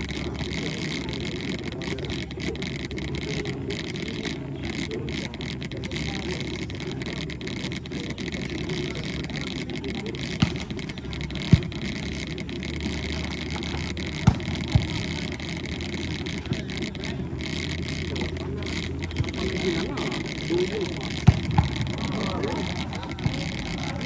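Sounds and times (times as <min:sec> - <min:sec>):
low background noise: 0:00.0 - 0:24.0
volleyball being struck: 0:10.4 - 0:10.8, 0:14.2 - 0:15.1, 0:21.2 - 0:22.6.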